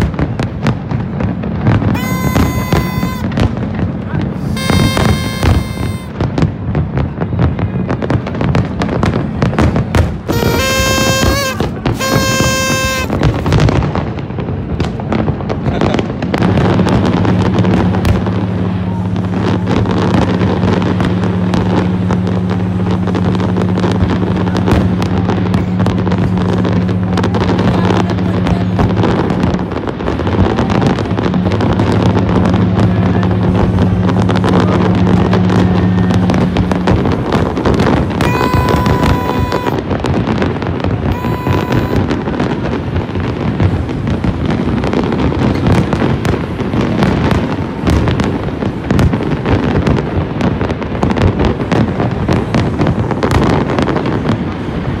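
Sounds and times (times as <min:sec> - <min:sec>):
fireworks banging and crackling: 0:00.0 - 0:55.0
deep ship's horns: 0:01.5 - 0:06.6, 0:10.2 - 0:14.1, 0:17.2 - 0:42.9
party blower toot: 0:01.8 - 0:03.5, 0:04.4 - 0:06.2, 0:10.3 - 0:13.7, 0:35.8 - 0:39.9, 0:41.0 - 0:42.2.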